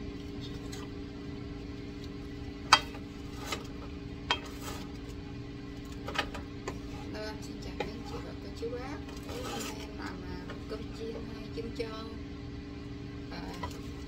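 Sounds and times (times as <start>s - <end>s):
steady low hum: 0.0s - 14.0s
spatula stirring rice in wok: 6.6s - 7.1s.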